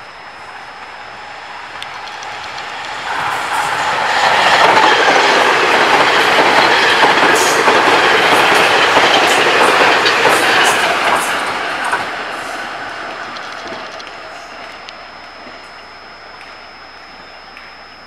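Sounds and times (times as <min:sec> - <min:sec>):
train wheels rushing on rail: 0:00.0 - 0:15.7.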